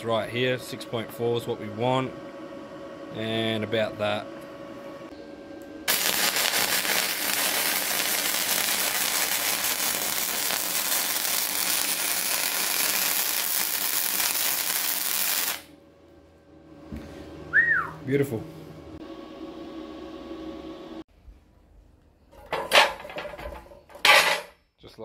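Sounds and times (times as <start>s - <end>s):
welding arc crackling: 5.9s - 15.7s.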